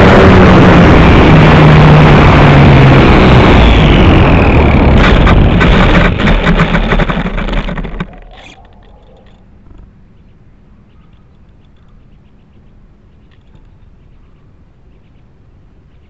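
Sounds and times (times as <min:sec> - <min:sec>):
model plane rattling over rough ground: 0:00.2 - 0:09.9.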